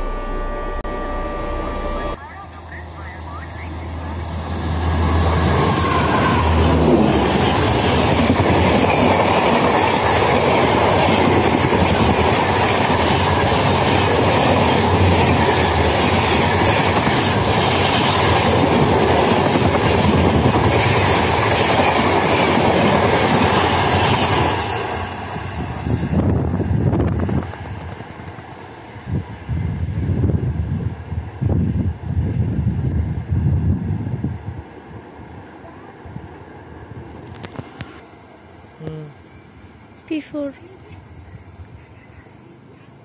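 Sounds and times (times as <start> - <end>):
train wheels rattling on rails: 4.5 - 30.0.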